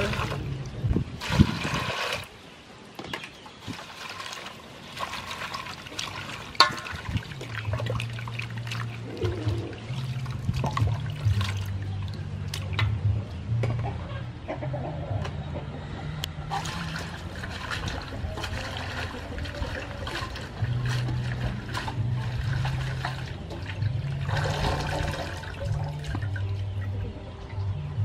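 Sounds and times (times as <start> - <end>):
water splashing and dripping: 0.0 - 13.0, 16.5 - 27.7
hands swishing greens in water: 3.6 - 11.7
low steady hum: 3.9 - 28.0.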